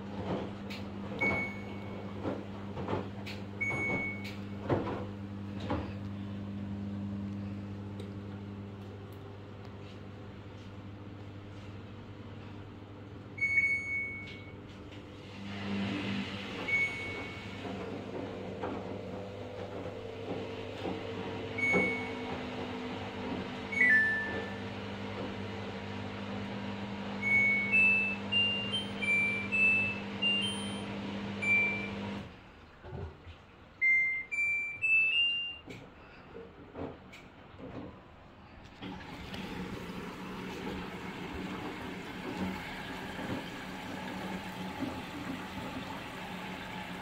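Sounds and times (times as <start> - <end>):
washing machine running hum: 0.0 - 47.0
washing machine beeps: 1.1 - 2.4, 3.3 - 4.6, 13.4 - 14.8, 15.5 - 32.3, 33.8 - 35.8.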